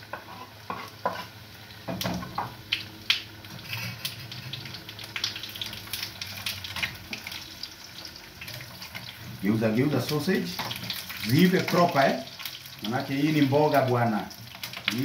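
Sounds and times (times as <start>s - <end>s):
food sizzling in a frying pan: 0.0s - 15.0s
metal spoon scraping a pan: 0.1s - 1.4s, 3.5s - 4.4s.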